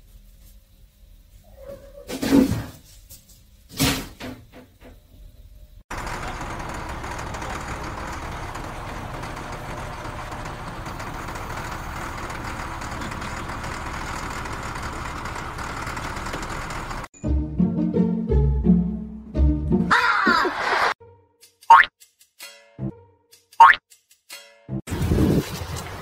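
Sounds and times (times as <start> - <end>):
diesel engine running: 5.9 - 17.1.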